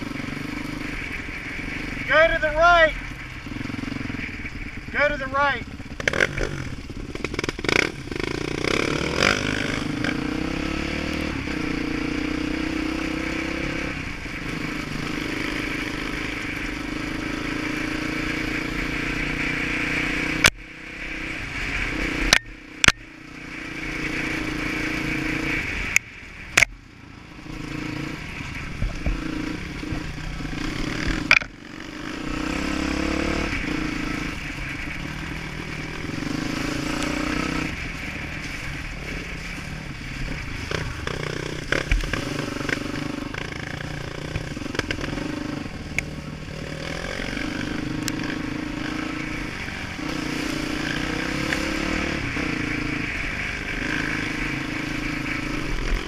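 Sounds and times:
dirt bike engine revving: 0:00.0 - 0:26.0, 0:27.2 - 0:56.0.

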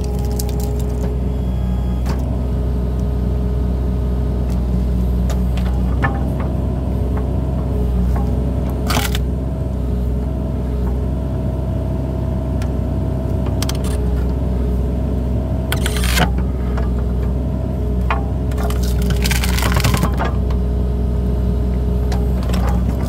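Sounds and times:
log cracking: 0:00.0 - 0:01.0, 0:18.6 - 0:20.2
excavator engine running: 0:00.0 - 0:23.0.

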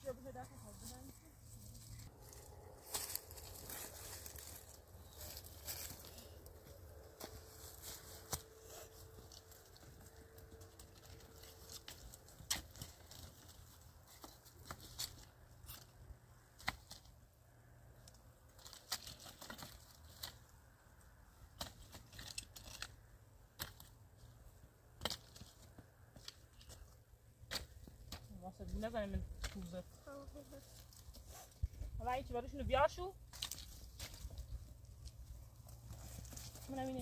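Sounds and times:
dry leaves crackling: 0:00.2 - 0:13.9, 0:33.2 - 0:37.0
sticks clattering and snapping: 0:02.8 - 0:15.9, 0:18.1 - 0:20.5, 0:21.5 - 0:23.0, 0:23.6 - 0:24.0, 0:25.0 - 0:26.9, 0:33.3 - 0:35.2.

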